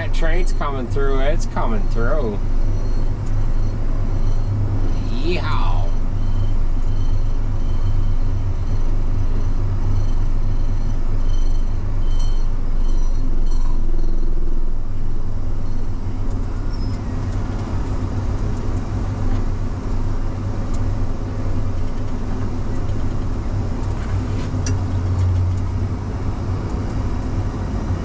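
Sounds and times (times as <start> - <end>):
tractor diesel engine running: 0.0 - 28.0.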